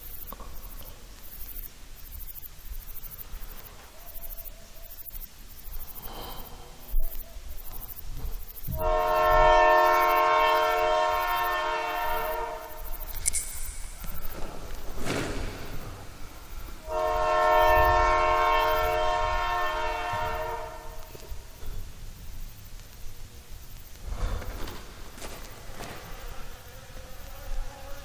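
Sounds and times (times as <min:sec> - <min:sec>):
low rumble of train: 0:00.0 - 0:28.0
steam locomotive whistle: 0:08.7 - 0:14.2, 0:16.8 - 0:21.1
sharp click: 0:13.0 - 0:14.8.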